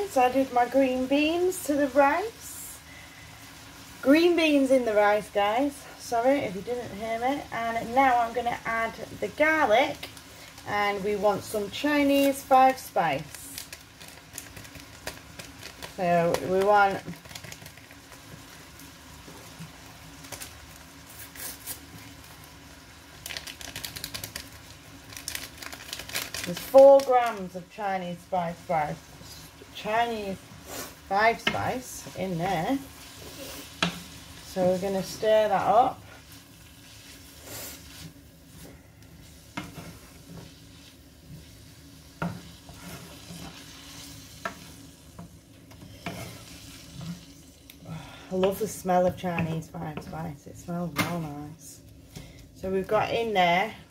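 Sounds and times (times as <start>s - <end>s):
meat frying in a pan: 0.0s - 49.9s
spice sachet rustling: 9.9s - 19.0s, 19.8s - 27.8s
wooden spoon scraping a pan: 30.5s - 47.5s.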